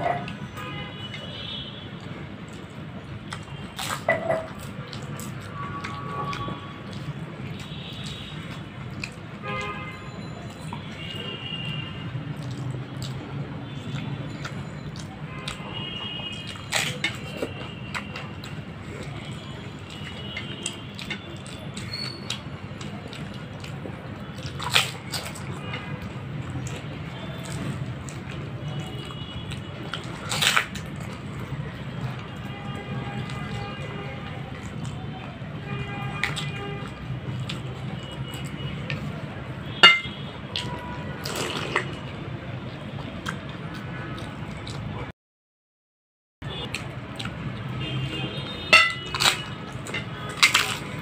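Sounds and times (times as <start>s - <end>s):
wet chewing: 0.0s - 45.1s, 46.4s - 51.0s
glass clink: 39.8s - 40.1s, 48.8s - 49.0s.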